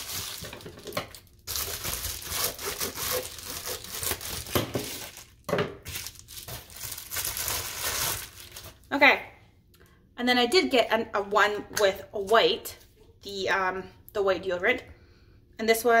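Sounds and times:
plastic packaging crinkling and tearing: 0.0s - 8.9s.

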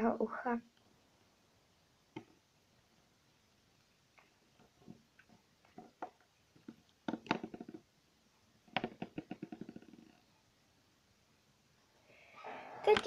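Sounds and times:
plastic figure tapping on table: 5.8s - 7.8s.

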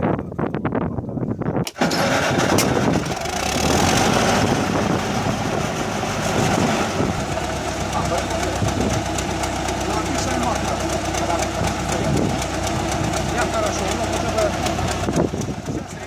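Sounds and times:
engine running loudly: 1.8s - 16.0s.

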